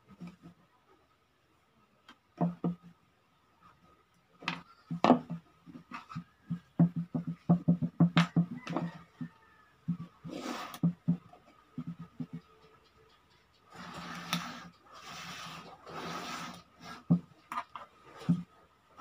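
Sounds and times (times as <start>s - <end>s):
plastic pipe knocking on tabletop: 6.2s - 10.1s
pen scratching along pipe: 9.9s - 11.2s, 11.8s - 18.4s.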